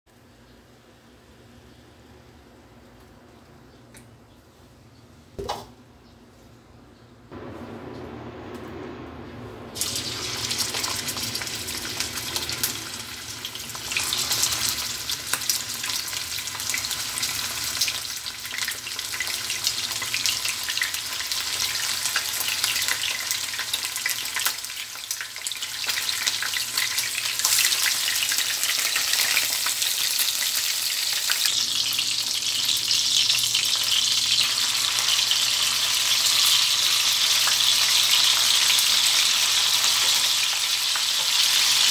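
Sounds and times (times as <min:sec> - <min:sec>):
chicken sizzling in hot oil: 0:09.8 - 0:41.9.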